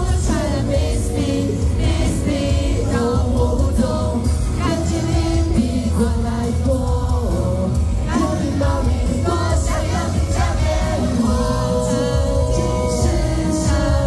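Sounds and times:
amplified pop music: 0.0 - 14.0
man singing into microphone: 0.0 - 14.0.

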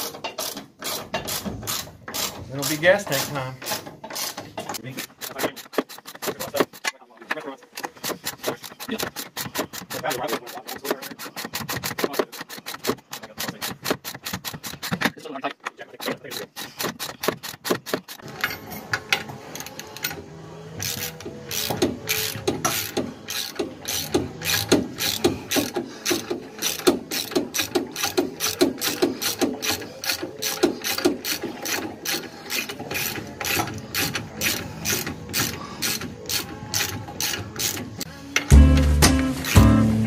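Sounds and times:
socket ratchet clicking: 20.8 - 38.1.

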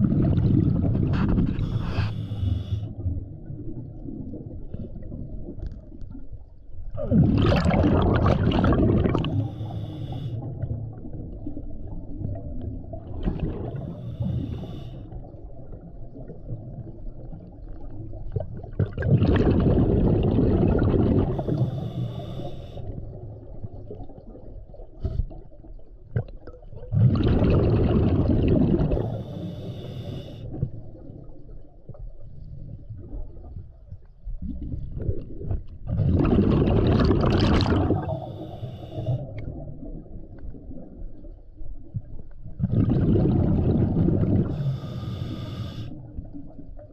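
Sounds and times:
exhaled bubbles rushing: 0.0 - 2.1, 6.8 - 9.7, 10.4 - 14.6, 15.2 - 22.1, 22.8 - 29.5, 30.5 - 44.7
low underwater rumble: 0.0 - 46.9.

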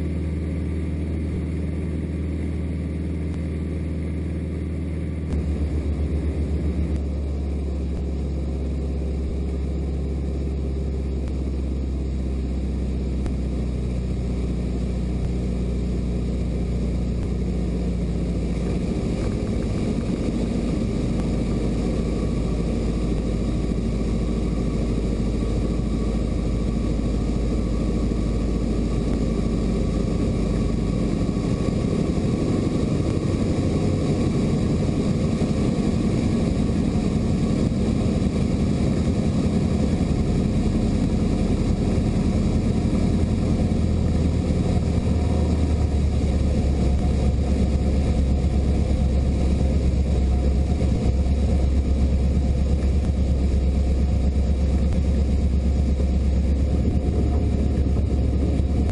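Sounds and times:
aircraft engine and propeller droning: 0.0 - 58.9.

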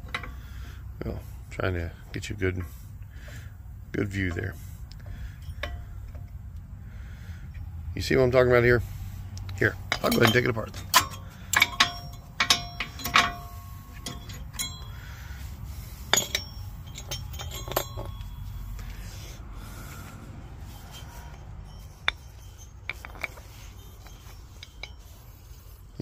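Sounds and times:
metal brake parts clinking: 0.0 - 8.8, 9.4 - 26.0
metal tapping and rubbing: 4.0 - 6.6, 9.4 - 26.0.

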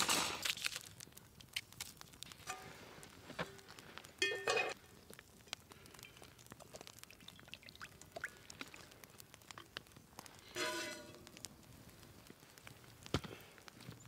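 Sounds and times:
campfire crackling: 0.0 - 14.0.

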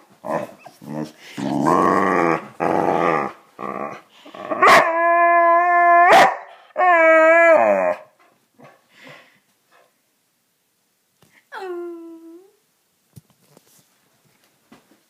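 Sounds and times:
dog growling: 0.2 - 5.0
dog howling: 3.1 - 8.1.

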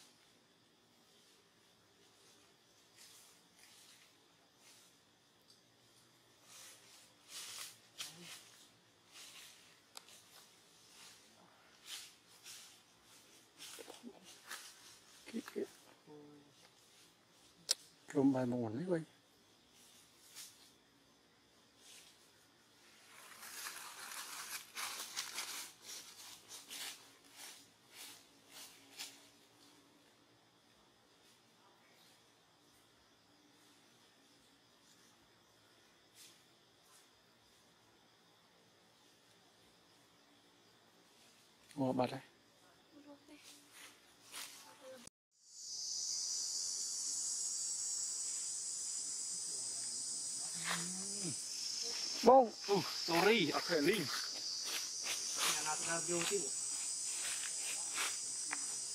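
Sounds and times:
rustling of leaves and twigs: 0.0 - 17.6, 21.7 - 29.8, 42.8 - 58.9
insects chirring in trees: 0.0 - 58.9.

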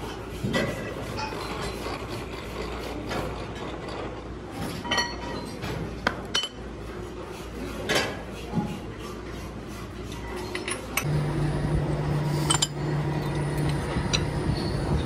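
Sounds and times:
workshop hum: 0.0 - 15.0
metal clinks and knocks: 12.3 - 13.5.

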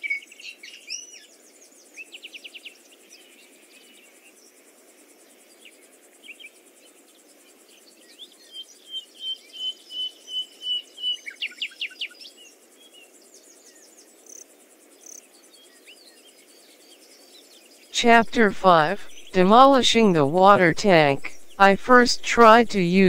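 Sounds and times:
faint background noise: 12.3 - 23.0
birds chirping: 19.0 - 19.4.

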